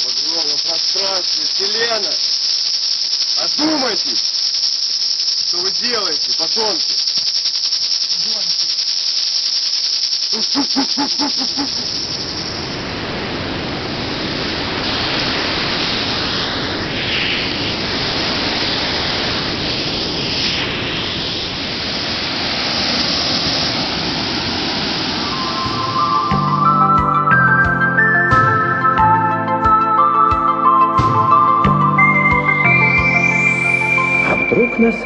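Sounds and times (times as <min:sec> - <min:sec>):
loud rushing hiss: 0:00.0 - 0:26.8.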